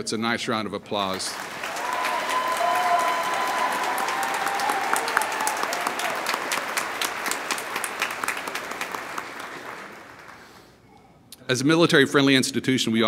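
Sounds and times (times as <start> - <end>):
audience applauding: 1.1 - 10.7.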